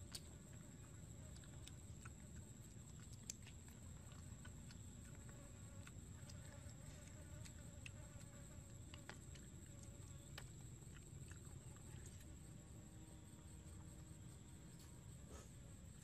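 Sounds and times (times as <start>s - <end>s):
person chewing: 0.0s - 12.3s
insect buzzing: 4.7s - 16.0s.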